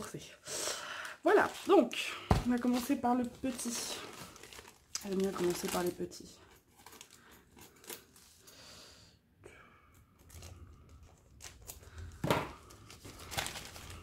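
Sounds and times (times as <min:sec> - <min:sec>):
plastic packaging crinkling: 0:01.0 - 0:08.3, 0:10.2 - 0:14.0.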